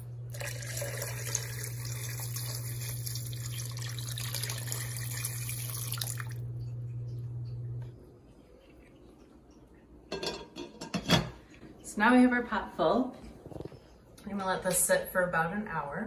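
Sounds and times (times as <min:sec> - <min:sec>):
water pouring into a steel pot: 0:00.3 - 0:06.5.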